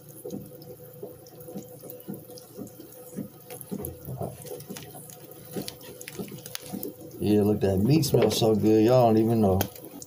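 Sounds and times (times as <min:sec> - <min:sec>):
wet squishing of pickle: 0:00.3 - 0:07.6.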